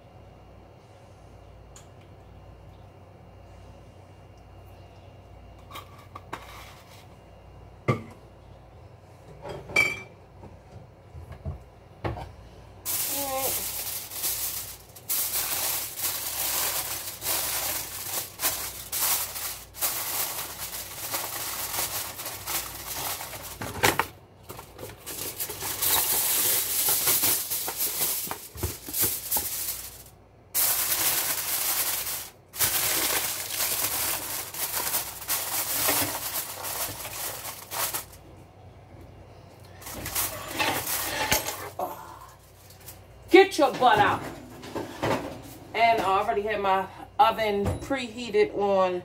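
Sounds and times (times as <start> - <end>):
aluminium foil crinkling: 12.9 - 38.2, 39.7 - 41.8, 42.4 - 43.1.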